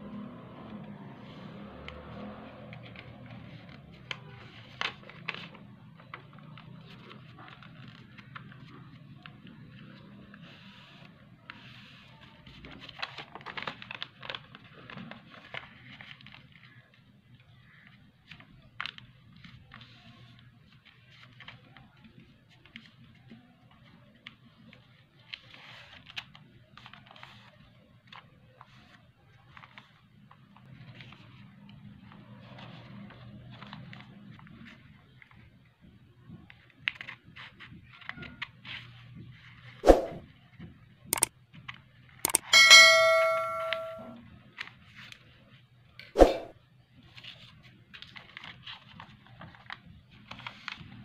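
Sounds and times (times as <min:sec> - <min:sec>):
paper being folded by hand: 0:02.4 - 0:35.5, 0:36.4 - 0:39.8, 0:47.1 - 0:51.0.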